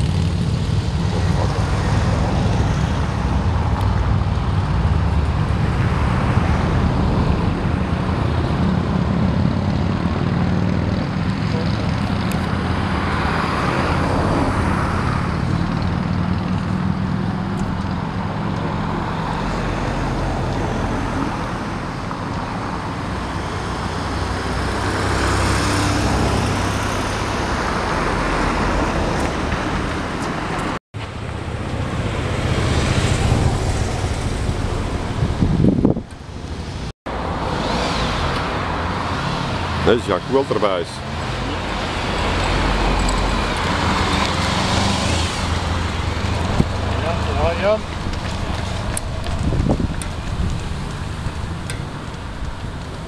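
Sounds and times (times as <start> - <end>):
road traffic rumble: 0.0 - 53.0
wind on microphone: 31.6 - 39.8, 41.6 - 53.0.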